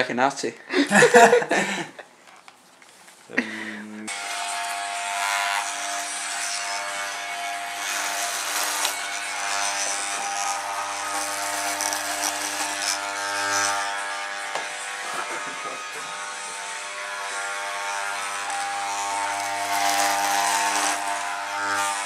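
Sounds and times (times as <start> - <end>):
electric hair clippers buzzing: 4.1 - 22.0.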